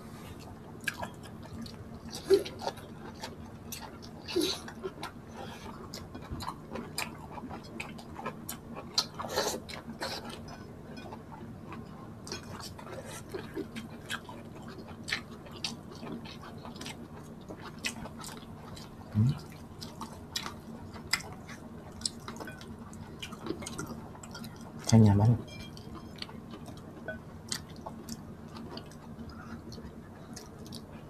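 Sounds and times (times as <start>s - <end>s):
wet chewing and mouth smacks: 12.2s - 24.9s, 25.8s - 31.0s.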